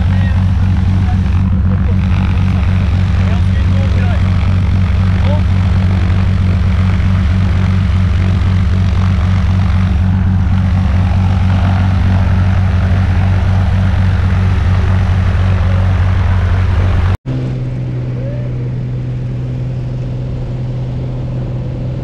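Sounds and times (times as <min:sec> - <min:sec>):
light plane engine idling: 0:00.0 - 0:22.0.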